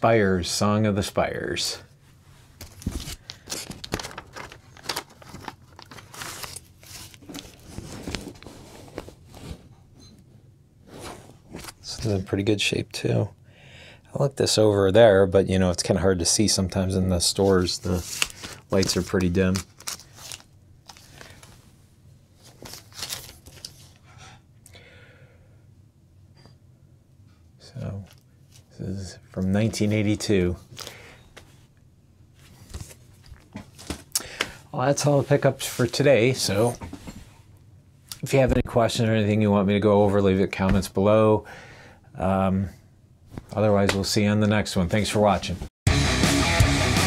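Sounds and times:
plastic sleeve crinkling: 2.6 - 9.3, 17.4 - 21.6, 22.4 - 24.0.

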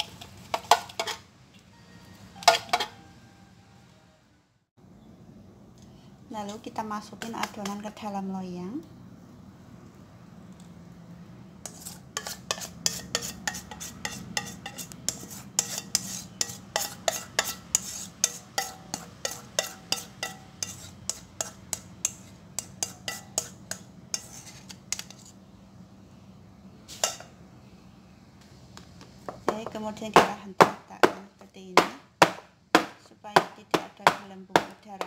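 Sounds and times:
spatula scraping metal bowl: 0.0 - 1.2, 11.6 - 25.4.

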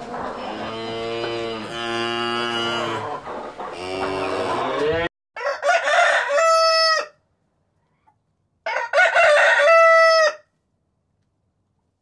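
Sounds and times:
rooster crowing: 5.4 - 7.2, 8.7 - 10.5.

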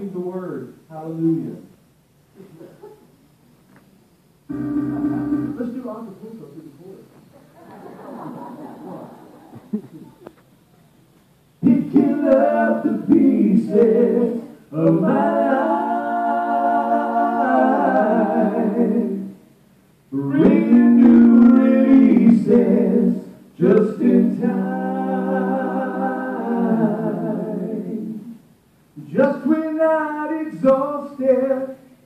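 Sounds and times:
men singing gospel song: 11.6 - 19.4, 20.1 - 28.4, 29.0 - 31.9.

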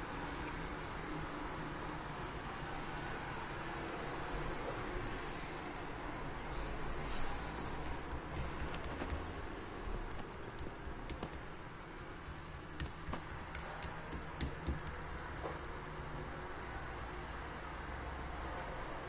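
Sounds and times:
fingertips patting dough: 7.8 - 15.5.

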